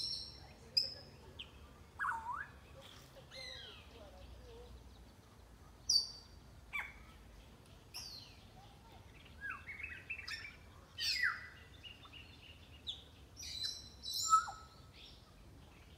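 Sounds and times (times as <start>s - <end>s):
parrots whistling and calling: 2.0s - 2.6s, 13.4s - 14.8s.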